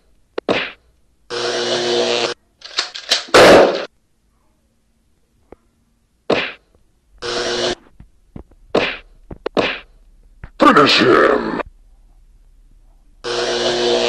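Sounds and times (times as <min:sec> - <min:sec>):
brief buzzing tone: 0:07.2 - 0:07.8, 0:13.2 - 0:14.0.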